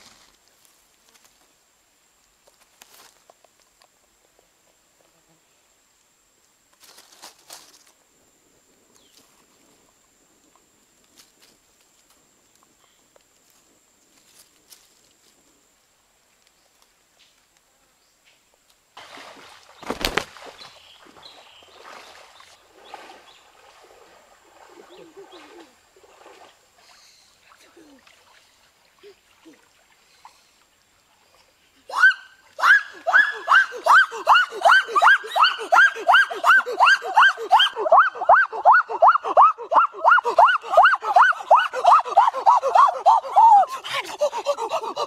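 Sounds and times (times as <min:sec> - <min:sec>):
water splashing as people wade: 0:19.0 - 0:31.6.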